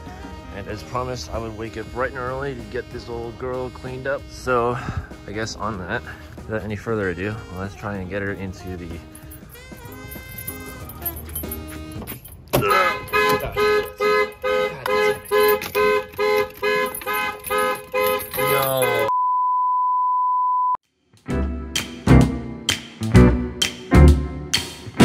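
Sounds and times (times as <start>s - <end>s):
single-pitch beep: 19.1s - 20.8s.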